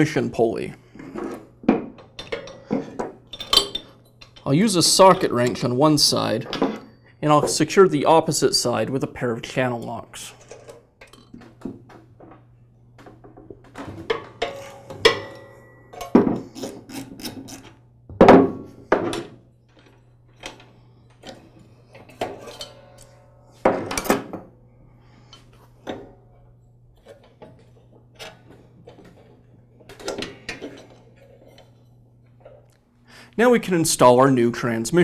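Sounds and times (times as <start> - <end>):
metallic clanks of wrench: 3.3 - 4.6.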